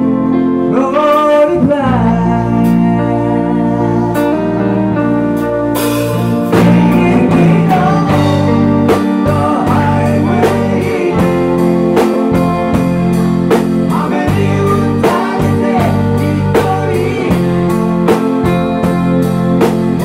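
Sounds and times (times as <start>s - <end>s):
electric bass: 0.0s - 20.0s
electric guitars: 0.0s - 20.0s
bending guitar notes: 2.4s - 20.0s
drum kit beat: 5.3s - 20.0s.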